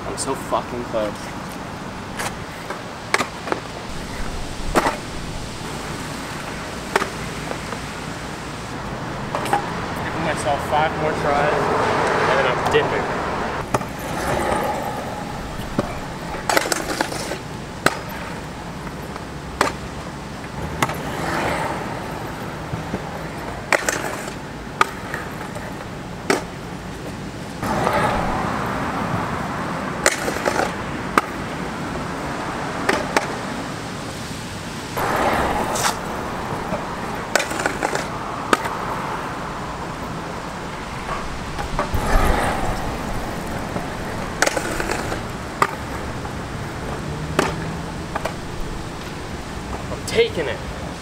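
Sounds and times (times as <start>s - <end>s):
scooter wheels rolling on concrete: 0.0s - 51.0s
scooter clacking on concrete: 13.6s - 21.8s, 30.0s - 31.4s, 35.0s - 39.2s, 41.0s - 50.2s.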